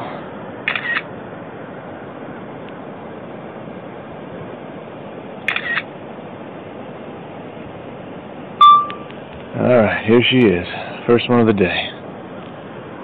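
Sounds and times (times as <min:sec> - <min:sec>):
steady background hiss: 0:00.0 - 0:13.0
camera shutter sound: 0:00.7 - 0:01.1, 0:05.5 - 0:05.9.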